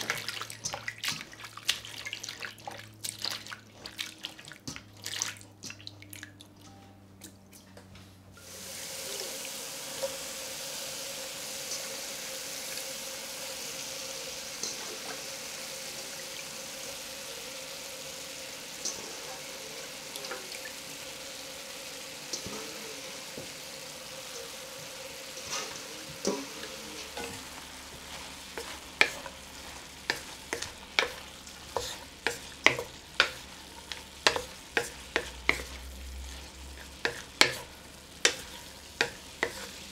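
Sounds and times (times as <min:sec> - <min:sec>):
hands swishing potato in water: 0:00.0 - 0:05.9
food sizzling in oil: 0:08.4 - 0:39.9
wooden spatula knocking wok: 0:24.8 - 0:39.9.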